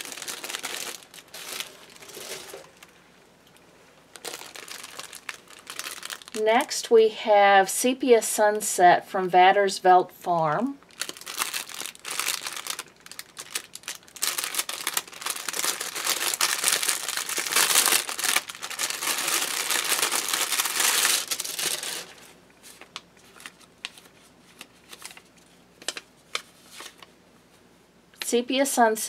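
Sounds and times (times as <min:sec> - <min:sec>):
plastic bag crinkling: 0:00.0 - 0:03.0, 0:04.1 - 0:06.7, 0:10.8 - 0:27.1.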